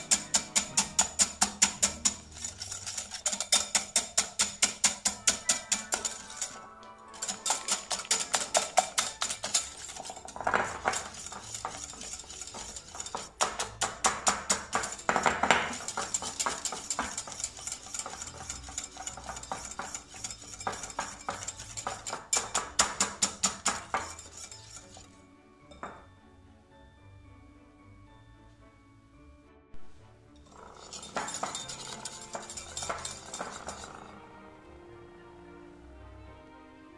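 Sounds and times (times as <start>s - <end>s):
whisk clicking against glass bowl: 0.0s - 6.6s, 7.2s - 25.1s, 30.5s - 34.1s.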